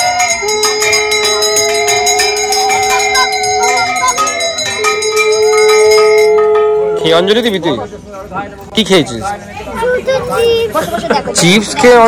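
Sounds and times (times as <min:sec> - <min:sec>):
conch shell blown: 0:00.0 - 0:07.0
bell ringing rapidly: 0:00.0 - 0:07.8.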